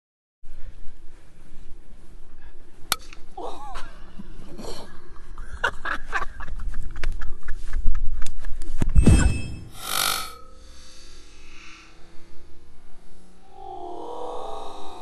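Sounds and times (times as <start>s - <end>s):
people laughing: 3.4s - 8.0s.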